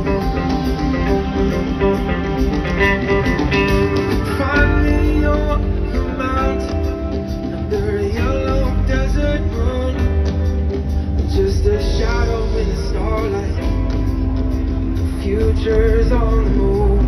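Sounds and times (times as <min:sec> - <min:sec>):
live rock band: 0:00.0 - 0:17.0.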